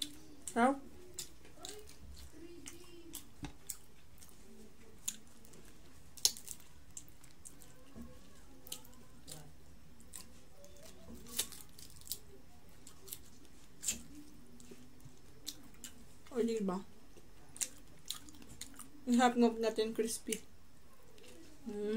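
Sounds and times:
crispy shrimp shells crackling: 0.0s - 7.9s, 10.1s - 14.1s
person chewing: 0.0s - 16.1s, 17.2s - 19.0s.

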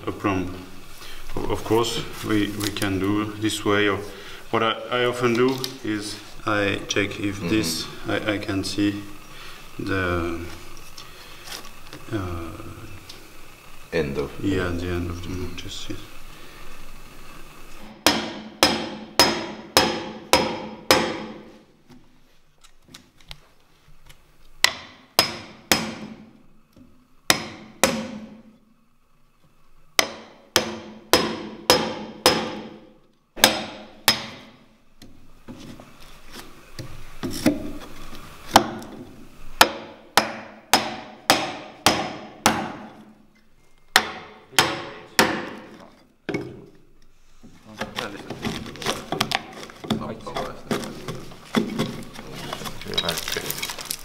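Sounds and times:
mallet striking chisel into wood: 17.8s - 21.5s, 24.6s - 26.3s, 27.3s - 28.4s, 30.0s - 34.6s, 38.5s - 39.0s, 39.6s - 43.1s, 44.0s - 46.6s.

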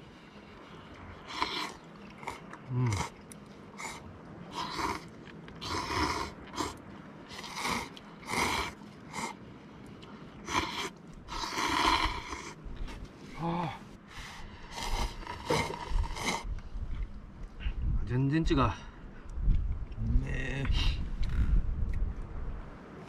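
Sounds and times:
person slurping noodles: 1.2s - 3.2s, 3.8s - 9.4s, 10.4s - 12.6s, 14.6s - 16.5s.

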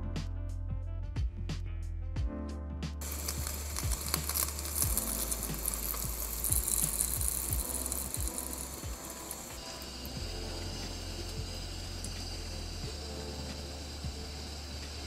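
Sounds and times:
background music: 0.0s - 15.0s
fish sizzling in hot oil: 3.0s - 15.0s.

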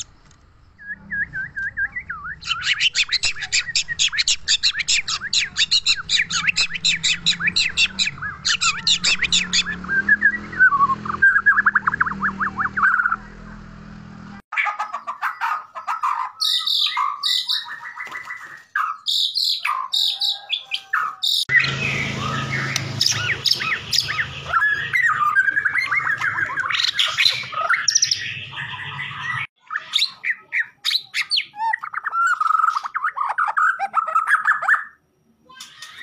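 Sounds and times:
bird whistling with chattering trills: 0.8s - 13.2s.

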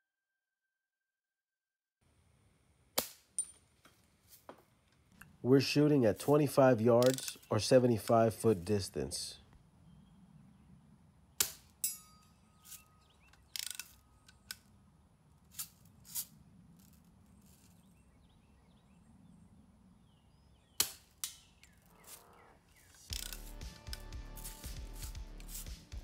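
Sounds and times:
metal target ringing: 11.8s - 12.4s
bb gun snaps and clicks: 23.1s - 24.2s.

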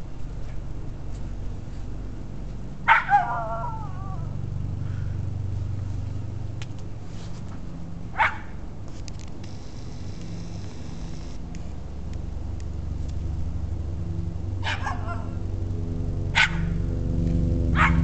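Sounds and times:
low hum: 0.0s - 18.0s
dog barking: 2.9s - 3.9s, 8.2s - 8.5s, 14.6s - 15.4s, 16.3s - 16.7s, 17.8s - 18.0s.

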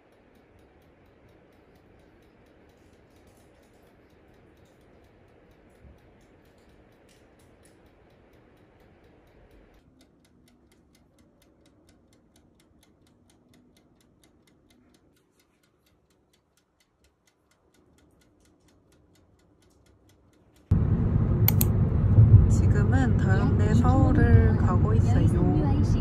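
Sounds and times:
wind-up timer ticking: 0.0s - 20.7s
road noise inside a car: 20.7s - 26.0s.

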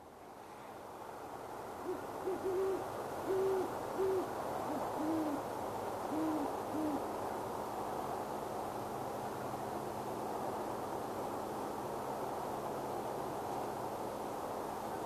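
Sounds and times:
background hiss: 0.0s - 15.0s
owls hooting: 1.8s - 5.4s, 6.1s - 7.0s.

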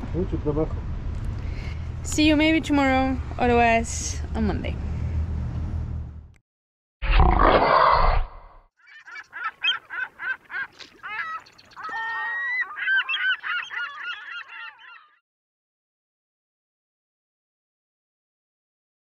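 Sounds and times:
birds honking: 8.8s - 15.2s.

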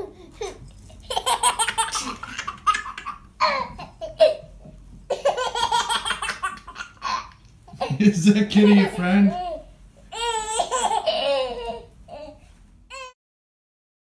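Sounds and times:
baby laughing: 0.0s - 13.1s.

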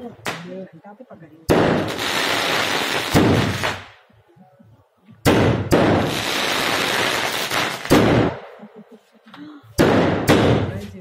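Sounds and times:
firecrackers going off: 1.5s - 4.0s, 5.2s - 8.6s, 9.8s - 10.9s.

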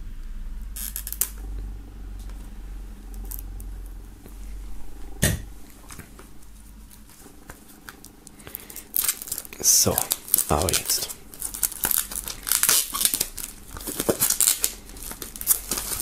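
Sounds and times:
low steady rumble: 0.0s - 16.0s
louder knock: 5.2s - 5.5s
knife scratching plastic wrap: 7.6s - 16.0s.

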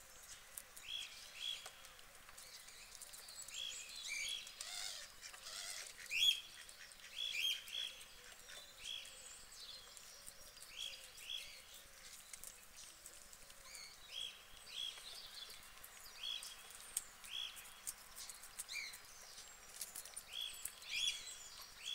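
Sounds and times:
small birds chirping: 0.0s - 21.9s
guinea pigs chewing lettuce: 9.7s - 21.9s.

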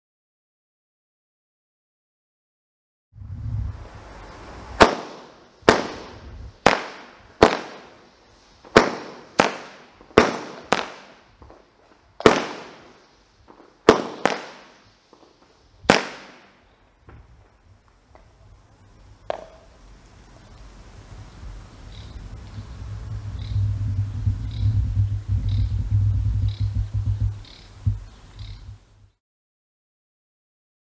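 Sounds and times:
firework reports with echo: 3.5s - 17.5s, 18.7s - 28.8s.

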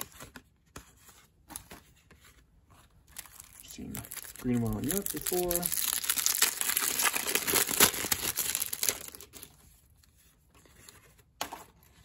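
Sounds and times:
plastic wrapper crinkling and tearing: 3.0s - 9.6s.

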